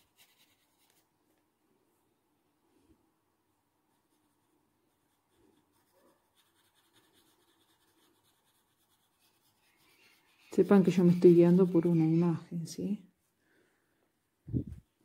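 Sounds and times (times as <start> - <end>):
pencil scratching on paper: 0.0 - 1.0, 3.9 - 12.4.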